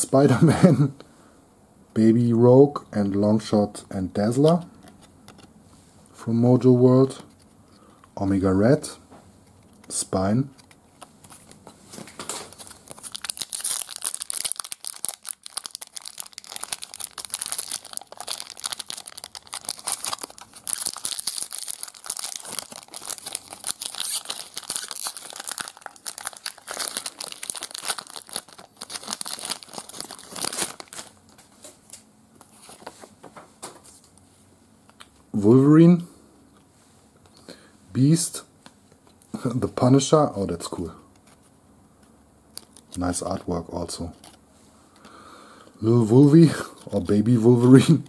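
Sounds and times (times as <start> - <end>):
foil wrapper tearing and crinkling: 12.2 - 31.4, 42.5 - 43.2.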